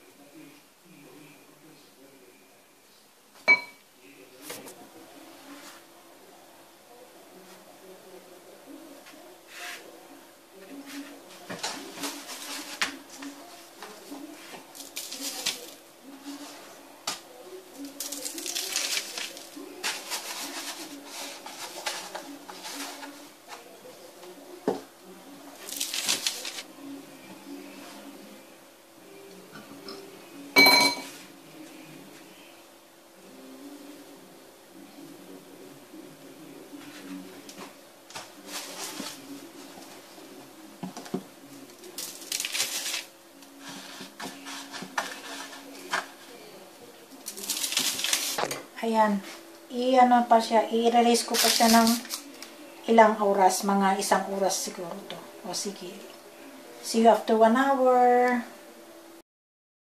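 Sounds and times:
gritty rustling and scraping: 10.7 - 17.2, 17.8 - 23.9, 25.6 - 26.7, 36.8 - 40.0, 41.7 - 46.5, 47.2 - 48.6.

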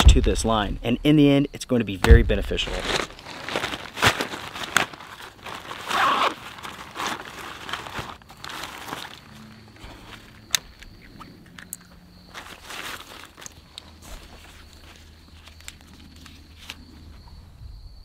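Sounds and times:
nylon sacks rustling: 2.2 - 10.4, 12.3 - 15.7.

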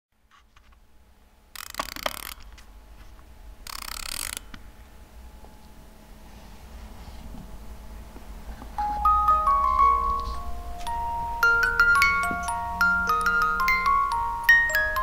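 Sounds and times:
mechanism rasping: 1.5 - 2.6, 3.6 - 4.6.

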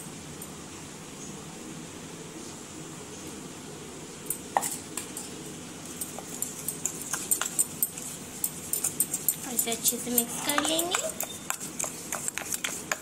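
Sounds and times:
metal spoon clinking against steel bowl: 6.0 - 13.0.

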